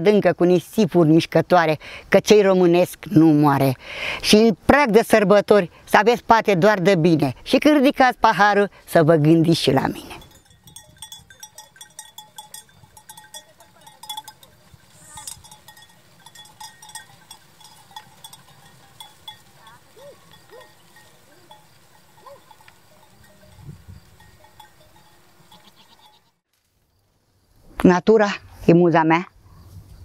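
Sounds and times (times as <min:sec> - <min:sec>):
sheep bells clinking: 0:09.4 - 0:26.4
sheep bleating: 0:25.5 - 0:26.3.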